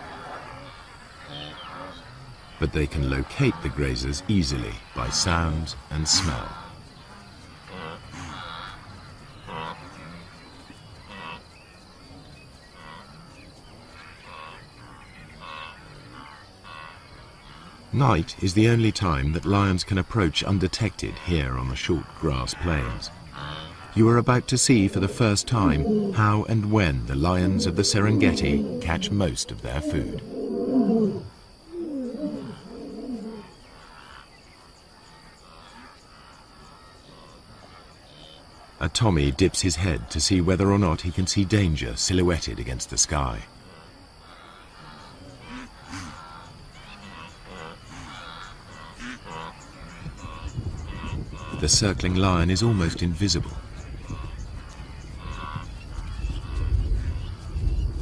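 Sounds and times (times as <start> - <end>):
insects trilling: 0.0 - 58.0
short animal calls: 22.9 - 34.2
lion roaring and grunting: 24.7 - 33.5.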